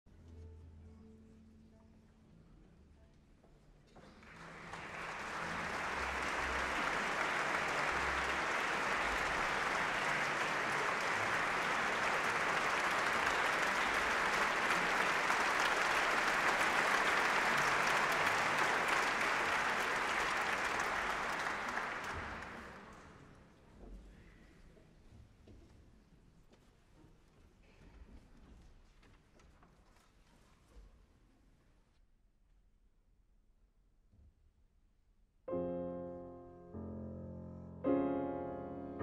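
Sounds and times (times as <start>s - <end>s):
audience applauding: 4.1s - 23.3s.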